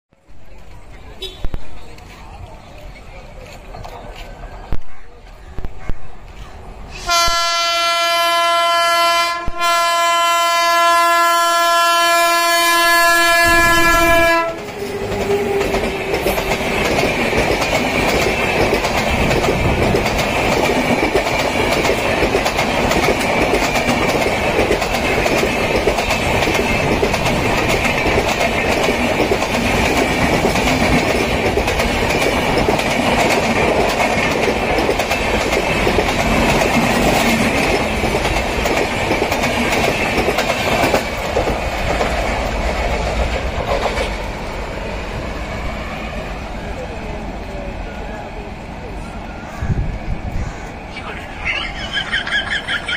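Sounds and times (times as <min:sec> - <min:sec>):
train wheels clattering over rail joints: 0:14.5 - 0:44.6.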